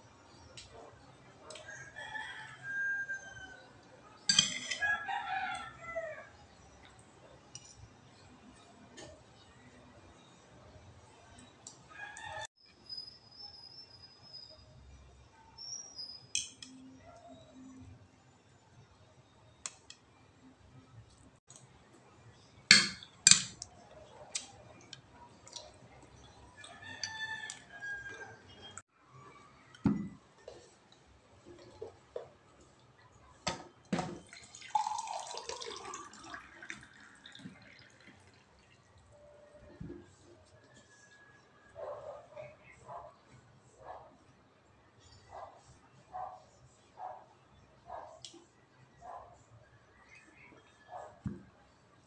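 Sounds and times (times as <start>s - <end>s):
spoon clinking against bowl: 4.3s - 4.8s, 22.7s - 23.6s
glass and pitcher knocking on table: 29.9s - 30.2s
water pouring into glass: 34.1s - 38.9s.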